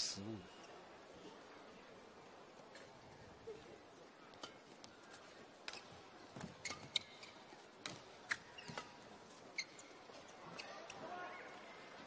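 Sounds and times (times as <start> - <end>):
faint hall ambience hiss: 0.0 - 4.3.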